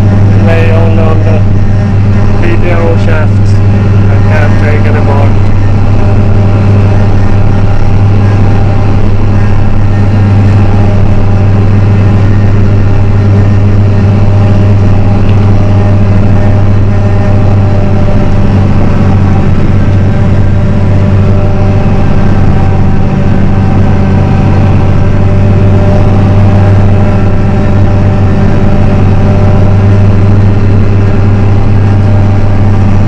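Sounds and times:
tractor engine drone: 0:00.0 - 0:33.0.

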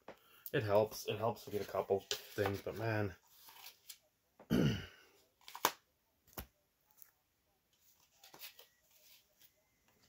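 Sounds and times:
cards clicking and tapping: 0:05.4 - 0:07.1.

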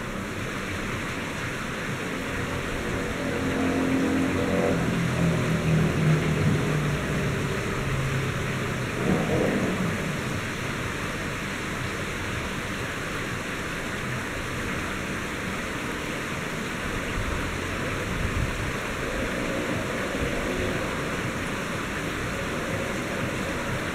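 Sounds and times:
heavy rain hissing: 0:00.0 - 0:23.9
low thunder rumble: 0:02.4 - 0:11.6.

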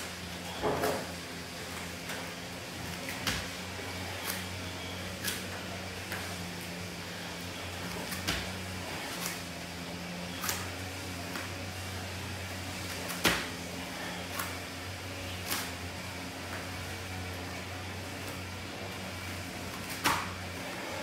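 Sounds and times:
knees and feet tapping on mat: 0:07.8 - 0:09.2, 0:12.9 - 0:13.6.

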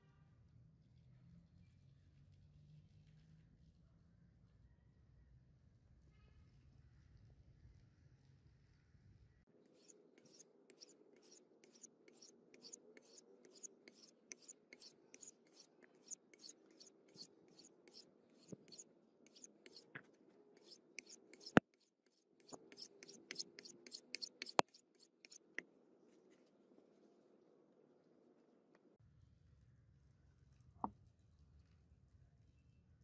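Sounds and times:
blade scraping on whetstone: 0:09.7 - 0:20.0, 0:20.6 - 0:21.6, 0:22.4 - 0:25.4.

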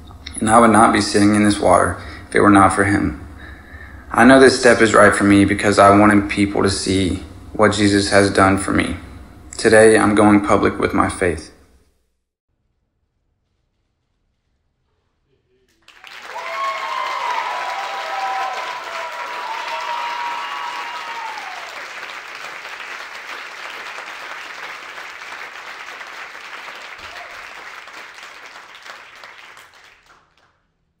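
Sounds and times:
crowd clapping: 0:15.7 - 0:30.7
people cheering and whooping: 0:15.9 - 0:22.2, 0:27.0 - 0:27.7.

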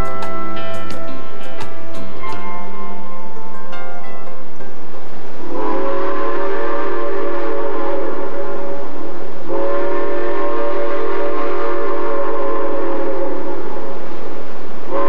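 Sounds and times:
steam locomotive chime whistle: 0:00.0 - 0:03.4, 0:05.4 - 0:14.0.

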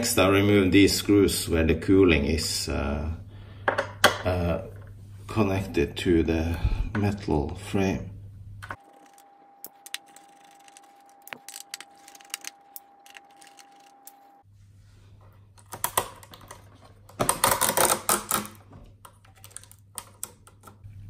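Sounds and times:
screwdriver clicking on screws: 0:08.8 - 0:14.2.

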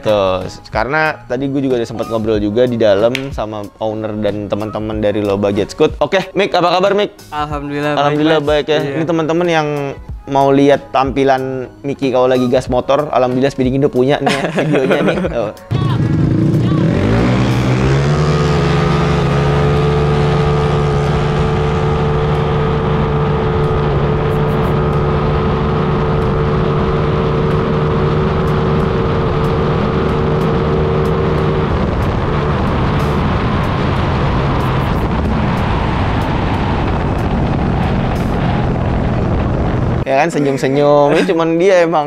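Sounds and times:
two-stroke scooter engine revving: 0:15.7 - 0:40.0
wind and road rush: 0:15.7 - 0:40.1.

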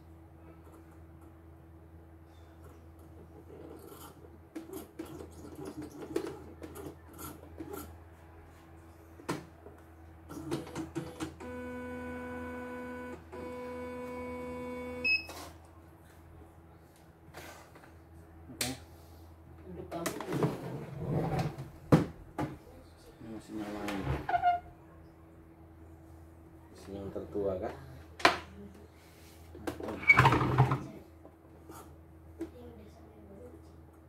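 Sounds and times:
embroidery machine motor whine: 0:11.4 - 0:15.1.

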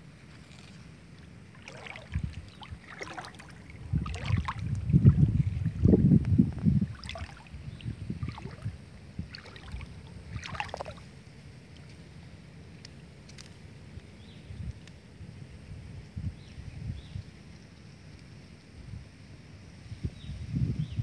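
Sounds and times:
low rumble on microphone: 0:00.0 - 0:11.2, 0:19.8 - 0:21.0.

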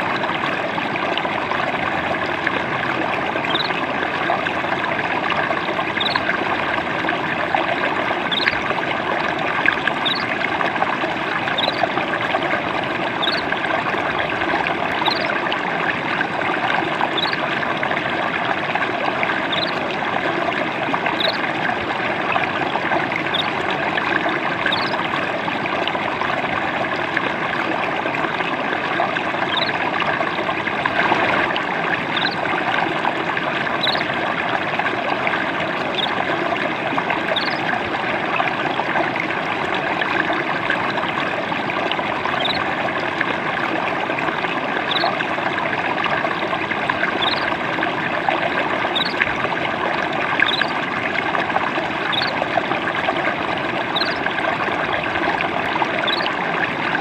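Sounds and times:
babbling stream: 0:00.0 - 0:57.0
faint high chirps: 0:03.5 - 0:03.8, 0:11.6 - 0:11.8, 0:13.2 - 0:13.5, 0:33.8 - 0:34.0.

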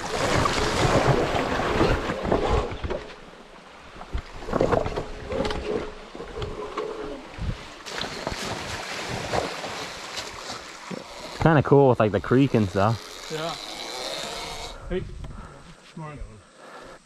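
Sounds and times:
water splashing: 0:00.0 - 0:14.0
wind noise on microphone: 0:07.3 - 0:07.7.

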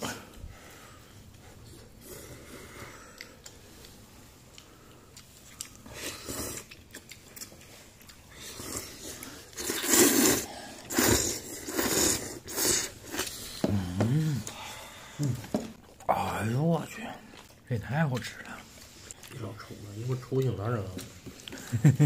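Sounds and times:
man slurping noodles: 0:08.5 - 0:14.5.

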